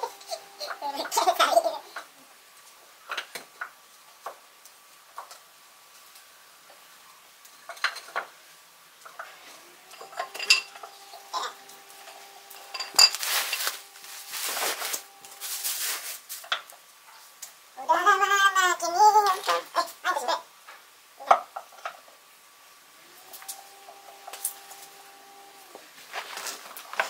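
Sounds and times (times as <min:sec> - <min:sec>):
scraping rustle: 0:10.8 - 0:17.3, 0:25.7 - 0:27.0.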